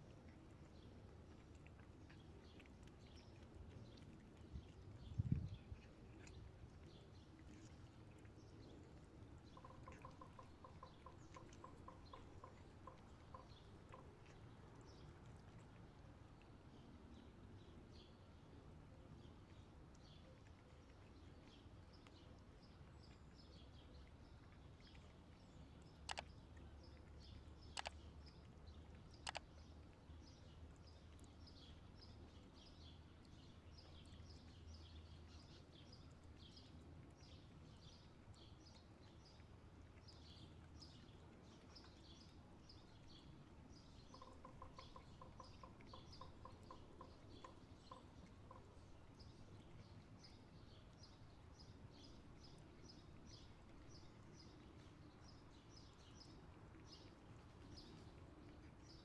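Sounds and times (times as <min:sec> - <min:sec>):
small birds chirping: 0:00.0 - 0:59.0
sharp clicks: 0:27.7 - 0:28.0, 0:29.2 - 0:29.5.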